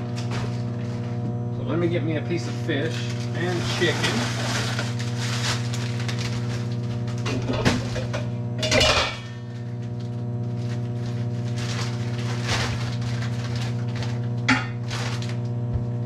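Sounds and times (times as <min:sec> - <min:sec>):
kitchen appliance humming: 0:00.0 - 0:16.0.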